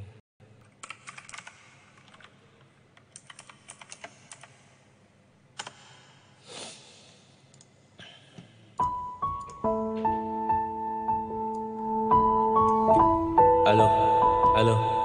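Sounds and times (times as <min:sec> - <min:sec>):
typing on computer keyboard: 0:00.6 - 0:02.4, 0:03.0 - 0:04.6.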